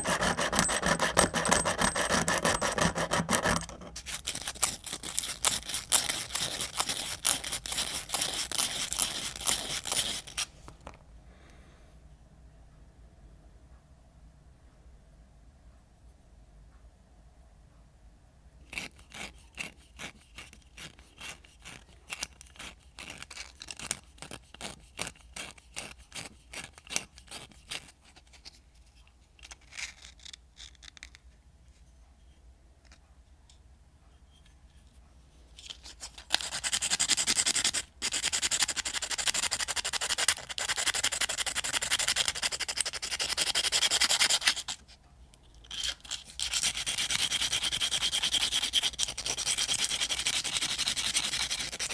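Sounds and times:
sandpaper scrubbing metal: 0.0s - 4.4s, 45.8s - 51.9s.

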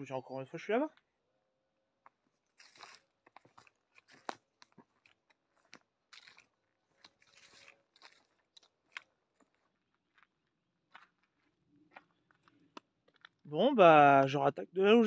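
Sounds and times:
footsteps crunching on dirt trail: 2.3s - 13.5s.

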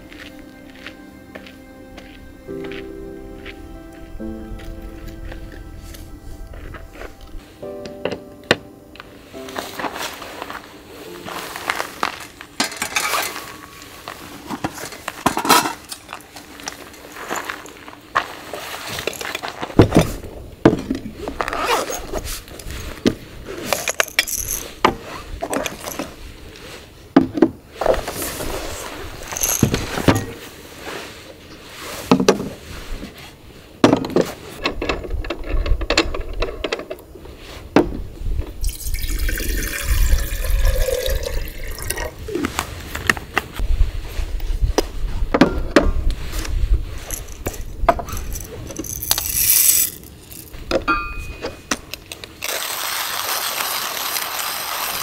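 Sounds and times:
liquid pouring: 38.6s - 42.2s, 52.4s - 55.0s.

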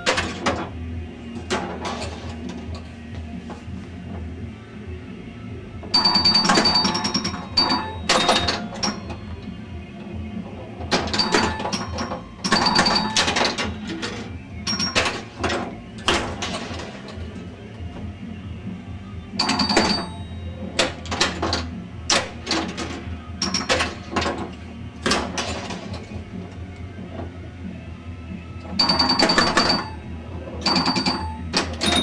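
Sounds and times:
pinball flippers clacking: 5.9s - 9.5s, 10.4s - 17.5s, 19.4s - 27.3s, 28.7s - 32.0s
pinball machine ringing tones: 5.9s - 9.8s, 10.8s - 17.2s, 19.3s - 24.4s, 28.6s - 32.0s.

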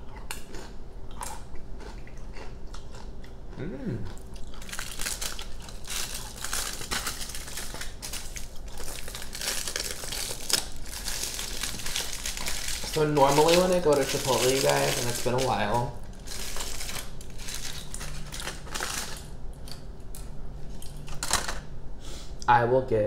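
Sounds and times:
tortilla chip crunching: 0.0s - 3.3s, 4.0s - 19.9s
aluminum foil crinkling: 4.5s - 19.3s.

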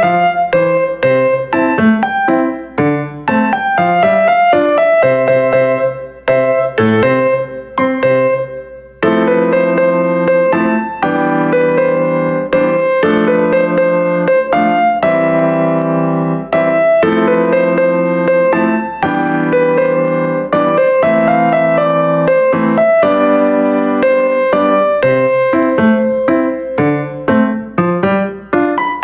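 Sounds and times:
slow keyboard melody: 0.0s - 29.0s.

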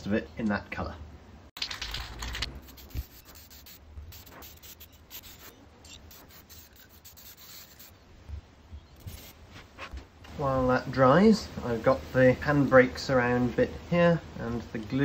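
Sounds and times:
spray paint can hissing: 1.9s - 8.0s, 9.0s - 9.4s.

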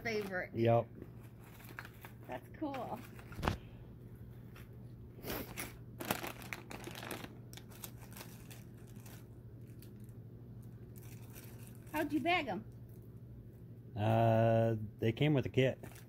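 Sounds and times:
plastic wrappers crinkling: 0.0s - 0.5s, 1.1s - 3.6s, 5.4s - 12.3s, 15.7s - 16.0s
steady low hum: 0.0s - 16.0s.

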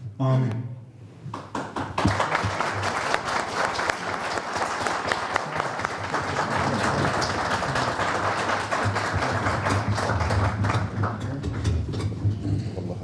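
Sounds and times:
people applauding: 1.4s - 11.9s.

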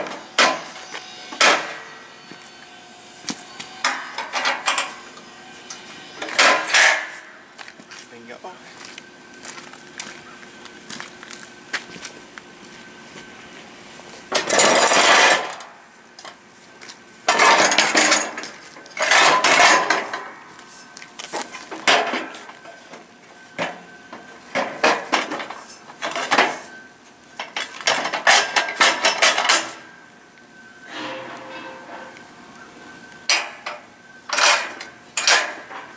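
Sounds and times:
metal frame clanking and scraping: 0.0s - 2.4s, 3.8s - 7.4s, 14.3s - 16.4s, 17.2s - 23.9s, 27.4s - 29.9s, 30.8s - 32.5s, 33.3s - 35.9s.

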